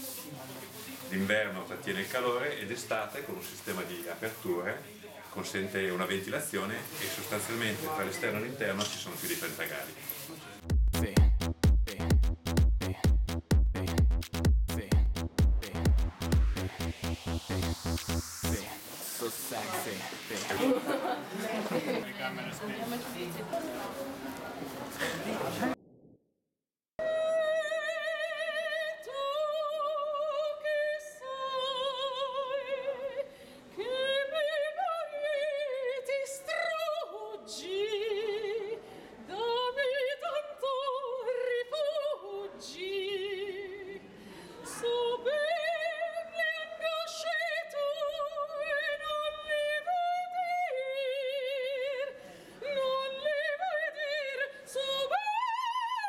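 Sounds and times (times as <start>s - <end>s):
woman singing opera: 27.0s - 56.0s.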